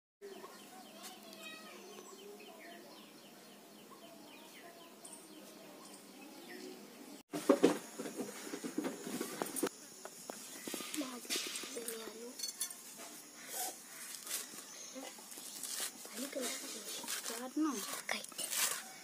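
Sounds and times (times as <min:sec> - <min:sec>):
small birds chirping: 0:00.2 - 0:07.2, 0:08.8 - 0:19.0
leaves rustling and crackling: 0:07.3 - 0:19.0.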